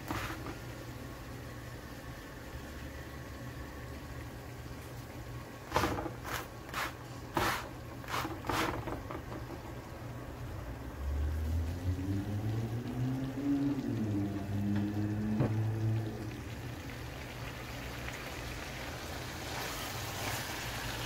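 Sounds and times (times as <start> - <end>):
low hum with shifting tones: 10.3 - 18.7.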